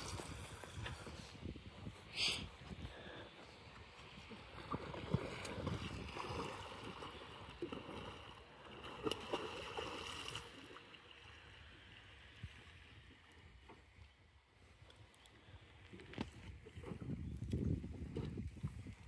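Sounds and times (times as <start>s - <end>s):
water splashing around a board: 4.2s - 11.1s.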